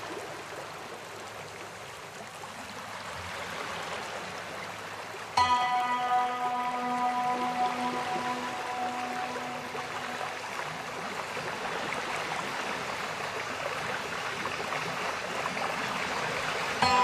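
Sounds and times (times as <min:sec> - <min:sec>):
background music held tones: 0:05.4 - 0:11.3, 0:16.8 - 0:17.0.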